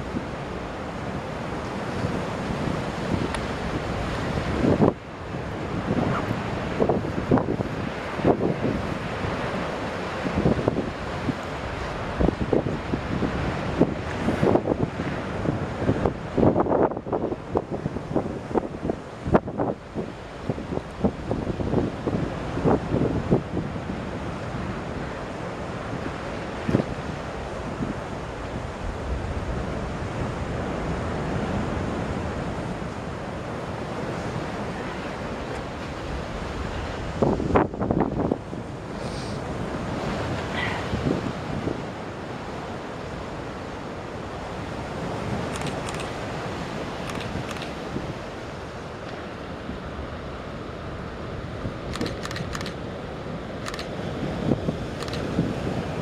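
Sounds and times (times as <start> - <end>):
wind buffeting microphone: 0.0 - 52.8, 53.4 - 56.0
choppy water: 0.0 - 56.0
small clicks: 47.0 - 47.8, 51.9 - 52.8, 55.0 - 55.3.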